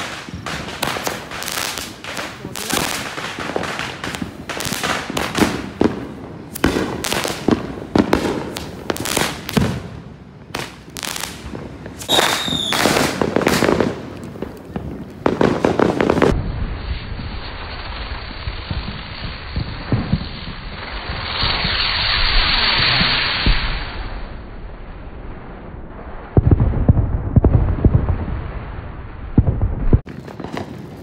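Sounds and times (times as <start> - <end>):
fireworks bangs and crackles: 0.0 - 31.0
firework whistle: 10.6 - 13.9, 15.7 - 24.4.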